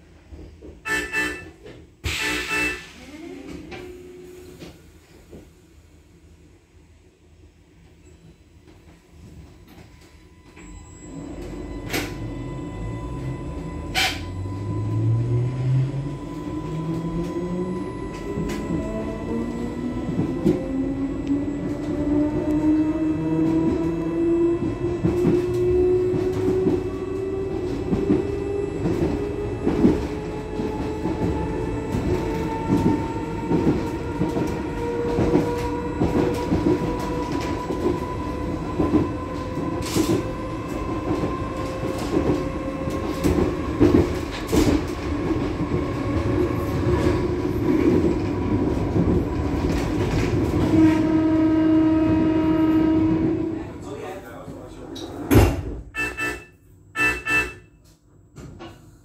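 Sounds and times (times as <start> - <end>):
train rumble: 0.0 - 57.4.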